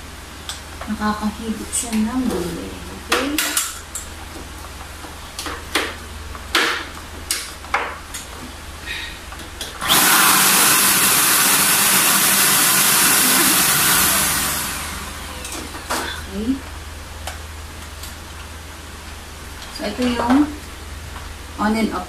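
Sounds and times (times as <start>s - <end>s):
handheld vacuum cleaner motor: 9.8s - 16.0s.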